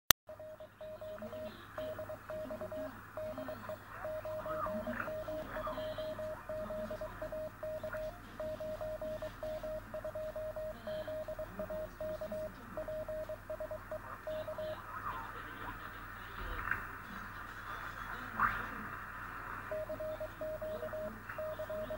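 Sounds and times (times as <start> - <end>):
morse code tone: 0.3 - 14.9, 19.7 - 21.9
radio band hiss: 0.3 - 21.9.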